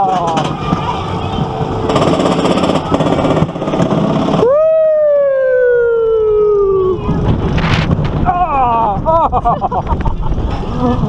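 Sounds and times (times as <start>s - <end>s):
wheels rattling on track: 0.0s - 4.5s
roller coaster rumble: 0.0s - 11.0s.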